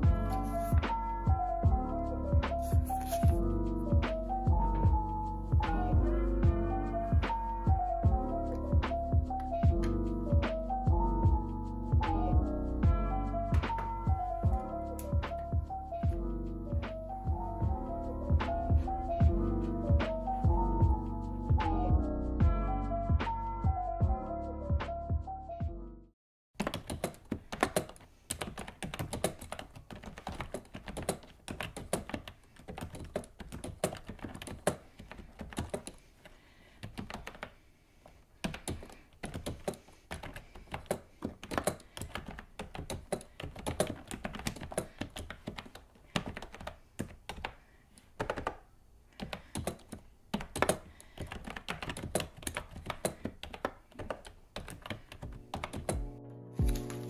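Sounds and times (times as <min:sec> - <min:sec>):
keyboard keystrokes clacking: 0:26.6 - 0:36.0, 0:38.5 - 0:47.6, 0:48.2 - 0:48.6, 0:49.2 - 0:57.0.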